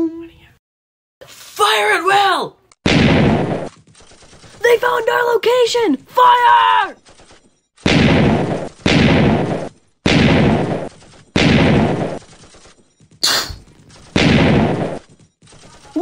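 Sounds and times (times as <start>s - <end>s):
gunfire bursts: 2.8s - 5.4s, 7.0s - 16.0s
short sharp hiss: 13.2s - 13.6s.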